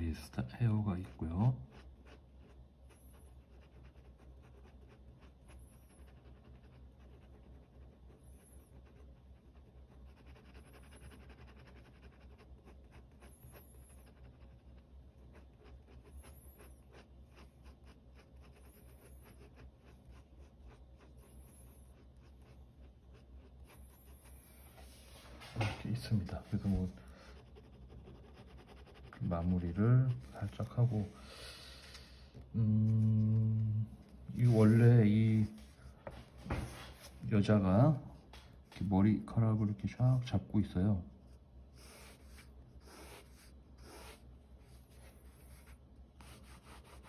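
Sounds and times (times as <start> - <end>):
pen scratching on paper: 0.1 - 24.9, 25.6 - 31.1, 34.3 - 35.5, 41.8 - 47.0.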